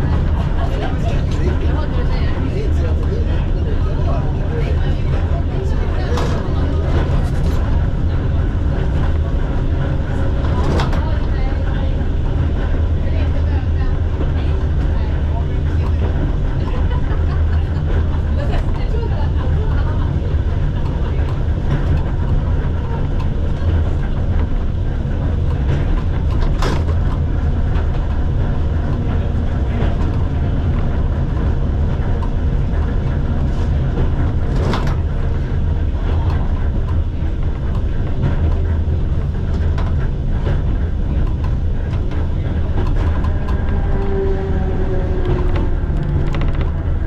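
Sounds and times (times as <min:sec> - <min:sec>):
tram rumbling along track: 0:00.0 - 0:47.0.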